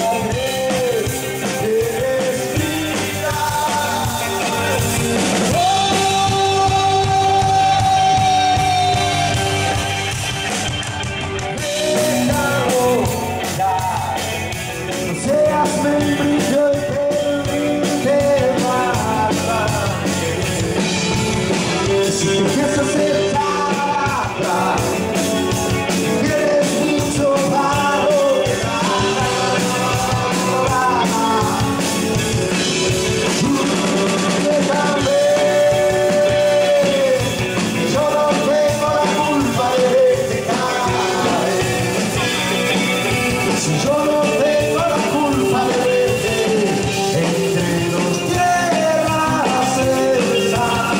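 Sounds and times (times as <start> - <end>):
live rock band playing: 0.0 - 50.9
voices singing held notes: 21.1 - 50.9.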